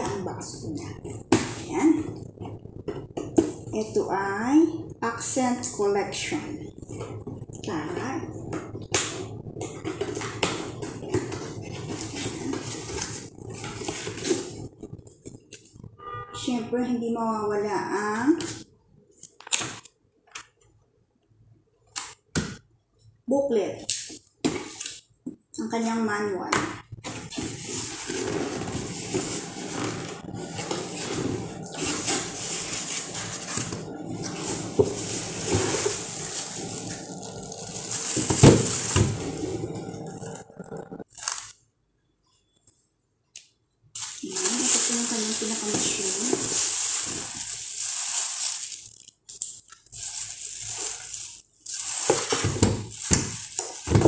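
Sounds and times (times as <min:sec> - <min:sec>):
plastic packaging rustling: 0:06.4 - 0:15.8, 0:26.9 - 0:41.6, 0:44.0 - 0:54.0
cardboard box rustling and scraping: 0:27.1 - 0:39.2.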